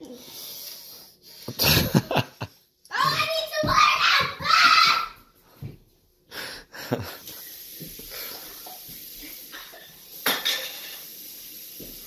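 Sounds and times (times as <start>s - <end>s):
steady hiss: 6.6s - 12.0s
dishes and cutlery clinking: 9.5s - 11.2s.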